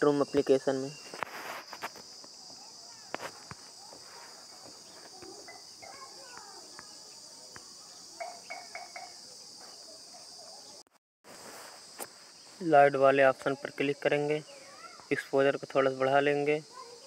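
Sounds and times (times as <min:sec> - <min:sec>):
faint chirps and ticks: 0:00.0 - 0:10.9.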